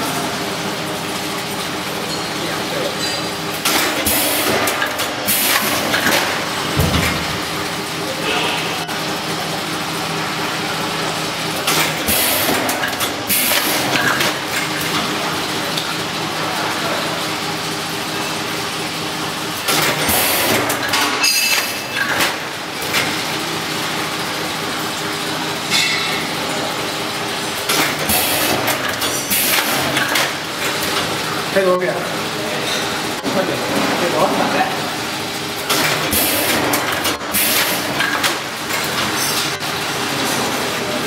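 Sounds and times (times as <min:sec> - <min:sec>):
packing machine hum: 0:00.0 - 0:41.0
machine hissing and clattering: 0:03.0 - 0:08.9, 0:09.6 - 0:15.2, 0:18.2 - 0:31.7, 0:35.0 - 0:40.8.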